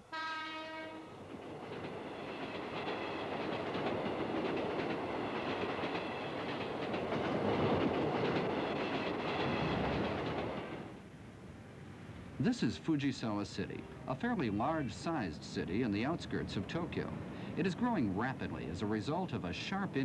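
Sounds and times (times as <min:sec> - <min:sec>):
electric train running on track: 0:00.0 - 0:11.0
wheels clacking over rail joints: 0:01.1 - 0:10.9.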